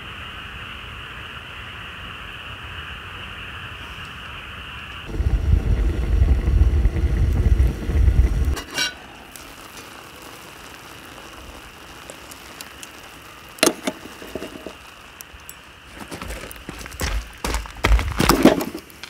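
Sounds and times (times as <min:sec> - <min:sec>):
wood fire crackling: 0:04.6 - 0:19.0
loud low rumbling: 0:05.1 - 0:08.6
metal pot clank: 0:08.6 - 0:09.0.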